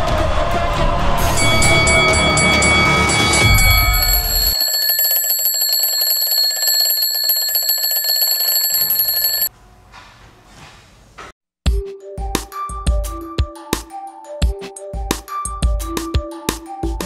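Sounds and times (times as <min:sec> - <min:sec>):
alarm clock bells ringing: 0:01.4 - 0:09.5
music: 0:11.7 - 0:17.0.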